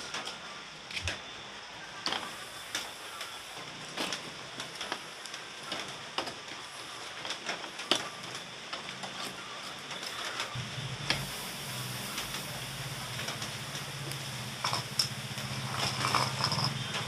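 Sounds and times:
crackles and pops: 0.0 - 17.0
chicken sizzling on a grill: 1.7 - 17.0.

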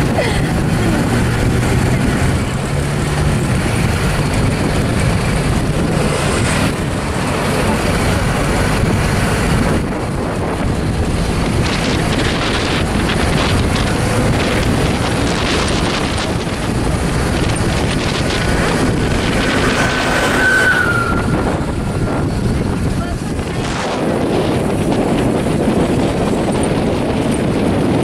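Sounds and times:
road noise: 0.0 - 28.0
truck engine rumble: 0.0 - 28.0
wind buffeting microphone: 0.0 - 28.0.

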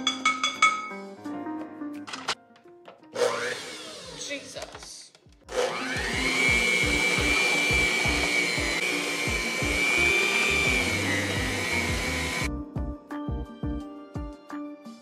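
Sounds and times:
hand mixer motor whine: 3.2 - 4.4, 5.5 - 12.5.

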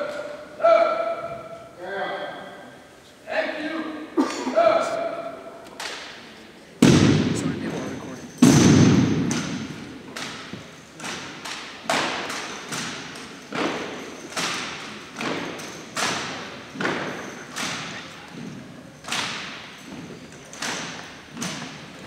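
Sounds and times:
stomping in unison on gym floor: 8.4 - 20.1.

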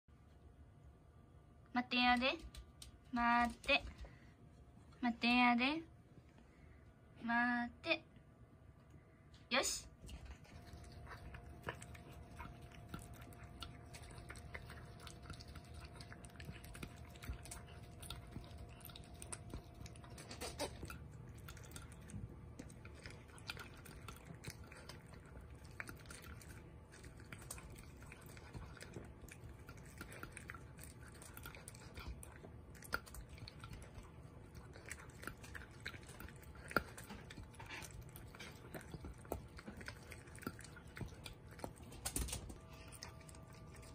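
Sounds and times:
puppy crunching kibble: 10.0 - 43.9.

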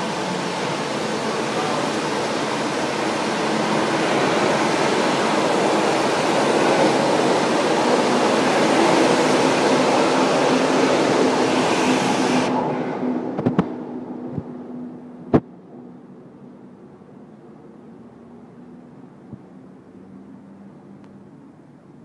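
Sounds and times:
train wheels rushing on rail: 0.0 - 14.6.

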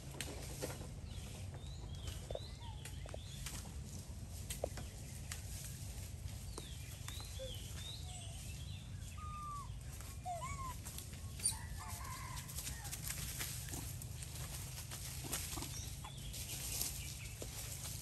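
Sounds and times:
chirping animal calls: 7.1 - 12.0.

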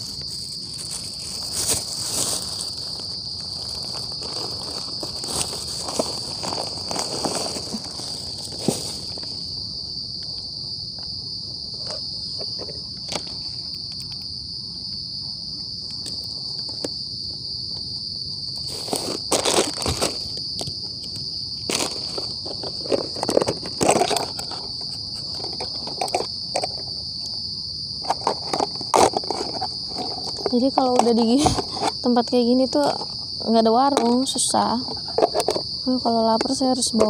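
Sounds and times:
food packaging rustling: 0.0 - 9.4, 18.6 - 26.9, 28.0 - 32.0
night insects chirring: 0.0 - 37.0.

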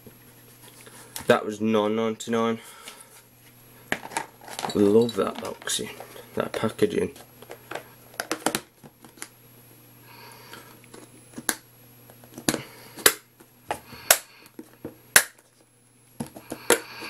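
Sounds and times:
plastic box clicks and knocks: 7.5 - 8.7.

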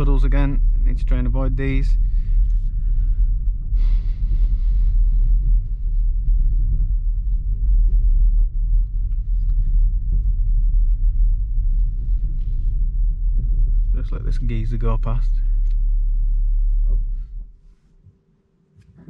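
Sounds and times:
car cabin low rumble: 0.0 - 18.2.

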